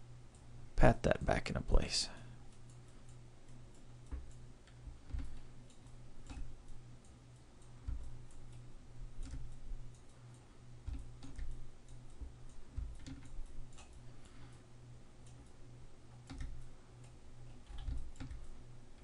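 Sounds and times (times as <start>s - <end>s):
low electrical hum: 0.0s - 19.0s
computer mouse clicks: 2.5s - 7.2s, 7.8s - 10.2s, 10.8s - 14.4s, 15.2s - 19.0s.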